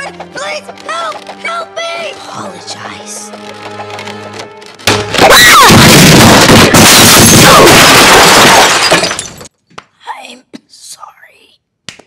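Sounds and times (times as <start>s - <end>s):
distorted cartoon scream: 5.2s - 8.7s.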